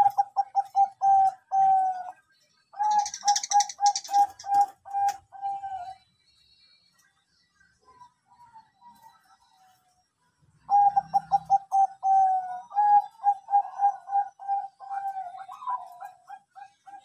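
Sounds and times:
dove cooing: 0.0 - 2.2, 2.8 - 6.0, 10.7 - 17.0.

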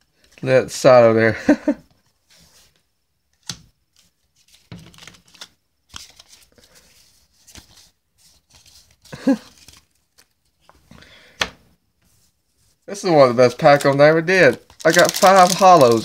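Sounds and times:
cards clicking and rustling: 3.4 - 6.8, 13.5 - 16.0.

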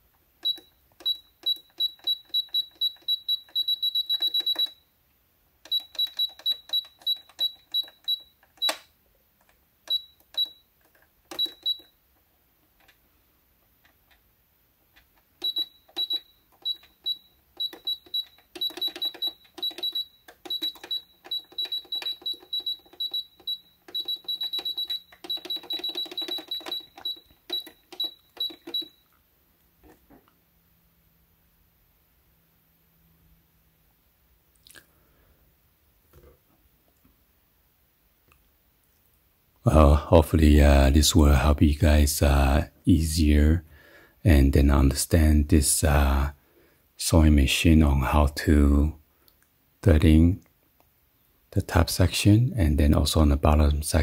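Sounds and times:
short high beeps: 15.4 - 29.0.

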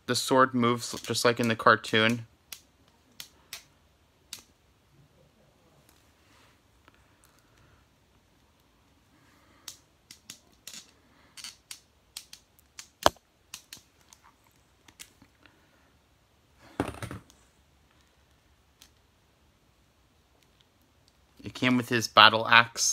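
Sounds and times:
plastic snap: 11.4 - 13.9.

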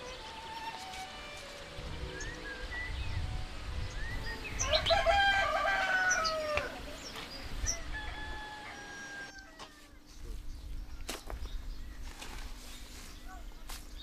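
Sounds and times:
small birds chirping: 0.0 - 14.0
rooster crowing: 4.6 - 6.8, 7.7 - 9.9.

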